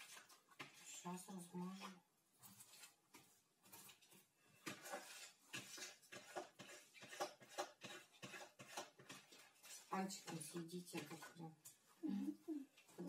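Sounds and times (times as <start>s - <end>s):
cream scraped from a bowl: 0.0s - 11.8s.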